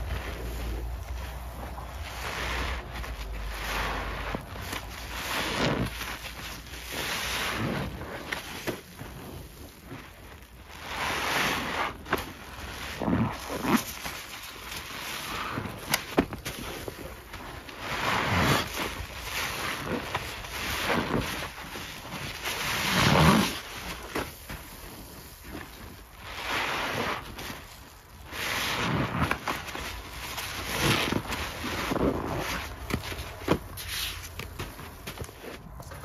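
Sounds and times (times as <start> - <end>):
wet paste squelching: 0.0 - 9.2.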